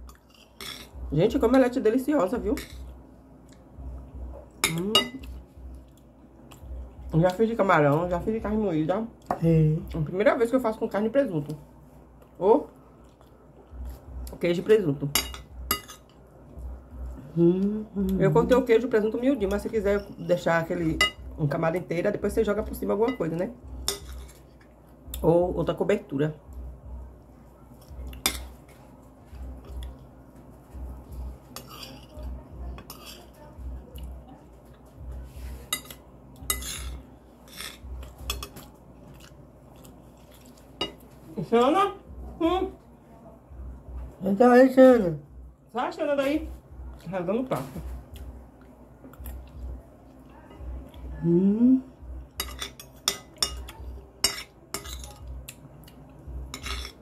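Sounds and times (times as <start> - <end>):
spoons scraping on plates: 0.1 - 1.0, 15.2 - 16.2, 31.4 - 32.2, 32.8 - 33.4, 35.4 - 38.7, 52.4 - 55.3, 56.5 - 57.0
person humming: 17.2 - 18.2, 51.1 - 52.0.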